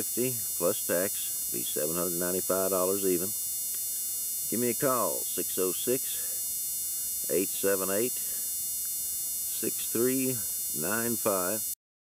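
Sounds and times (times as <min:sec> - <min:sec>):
man speaking: 0:00.0 - 0:03.3, 0:04.5 - 0:06.3, 0:07.2 - 0:08.4, 0:09.6 - 0:11.7
mains hum with high whine: 0:00.0 - 0:11.8.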